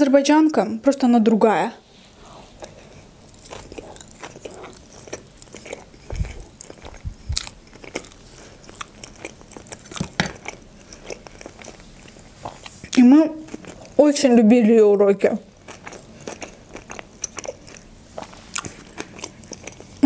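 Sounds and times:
person chewing wetly: 2.6s - 14.0s, 15.5s - 20.0s
dull low thumps: 6.0s - 7.5s.

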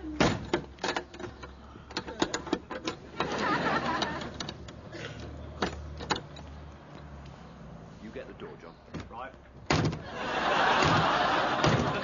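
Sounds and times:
lock rattling: 0.2s - 3.3s.

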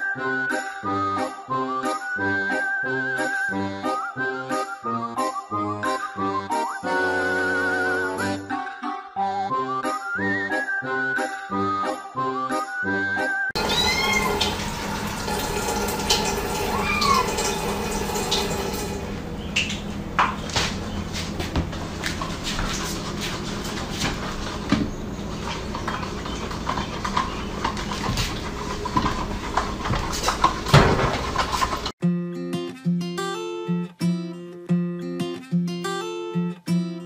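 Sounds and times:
cat meowing: 13.6s - 14.5s, 16.7s - 17.4s.

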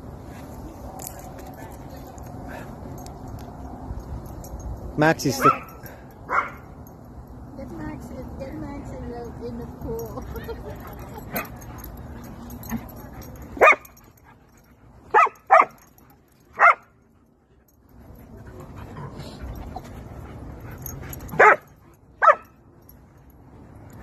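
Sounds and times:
dog barking: 5.4s - 6.6s, 15.1s - 15.8s, 16.6s - 16.9s, 21.4s - 21.6s, 22.2s - 22.5s.

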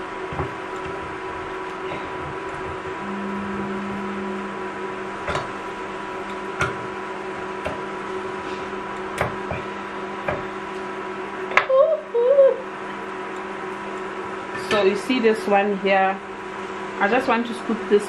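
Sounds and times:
steady electrical hum: 0.0s - 18.0s
low tone: 3.0s - 6.6s.

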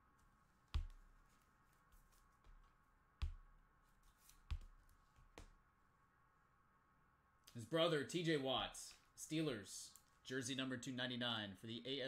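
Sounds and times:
faint steady hum: 0.0s - 12.0s
cards tapping on a table: 0.8s - 1.1s, 3.2s - 3.5s, 4.3s - 5.5s.

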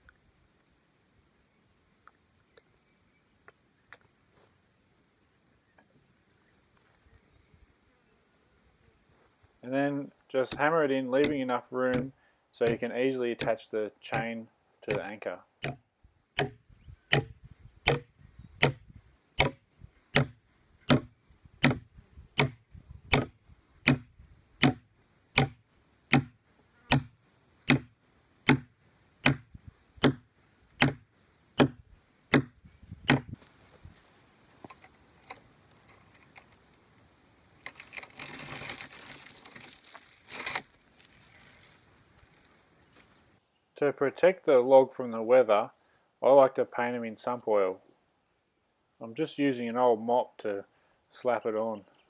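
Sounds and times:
hammer striking steel rod: 16.4s - 18.8s, 19.4s - 21.8s, 22.4s - 27.1s, 27.7s - 27.9s, 28.5s - 30.2s, 30.8s - 31.0s, 31.6s - 33.3s
metal chain rattling: 37.5s - 43.1s.

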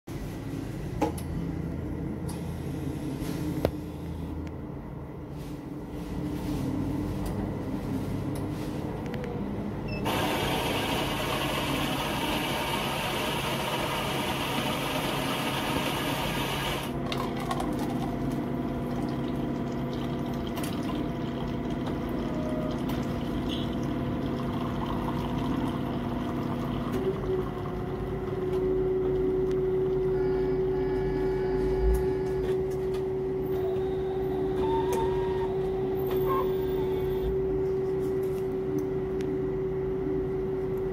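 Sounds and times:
machine motor humming: 10.0s - 17.0s.

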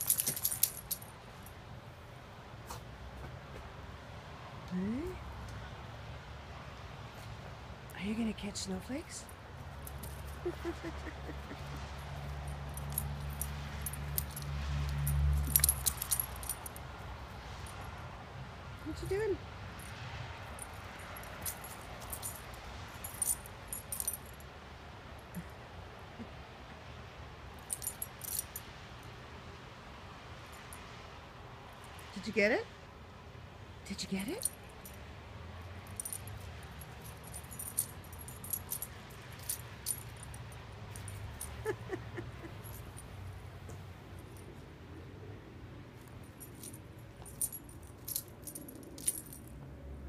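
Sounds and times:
dog collar tags jingling: 0.0s - 1.1s, 9.7s - 17.9s, 19.8s - 24.4s, 27.6s - 28.6s, 34.2s - 35.0s, 35.8s - 44.6s, 46.0s - 49.6s
steady outdoor hiss: 0.0s - 50.0s.

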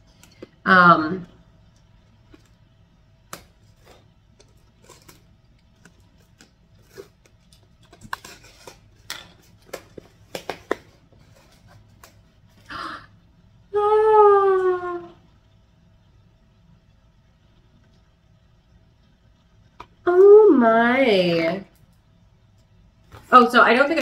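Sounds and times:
tape and cardboard crinkling: 3.4s - 12.2s.

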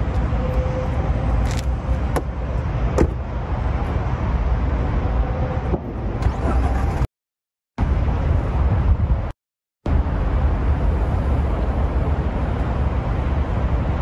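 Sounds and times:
steady low rumble: 7.8s - 14.0s.

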